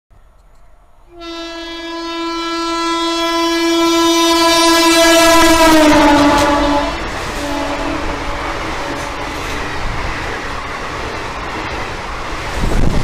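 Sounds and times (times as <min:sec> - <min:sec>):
rush of passing train: 0:00.2 - 0:13.0
two-tone locomotive air horn: 0:01.1 - 0:09.6.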